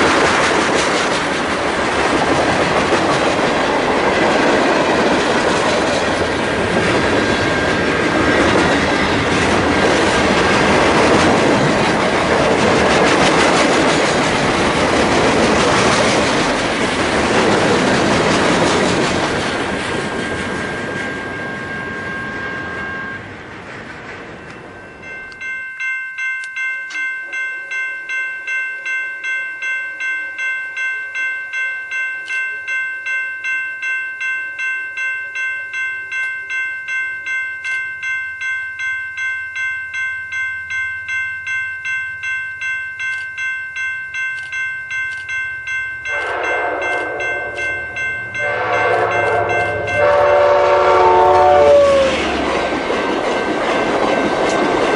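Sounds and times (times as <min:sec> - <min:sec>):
freight train cars rolling past: 0:00.0 - 0:25.9, 0:43.4 - 0:54.9
railroad crossing bell ringing: 0:01.2 - 0:54.9
train horn blasts: 0:46.1 - 0:47.7, 0:48.4 - 0:52.3.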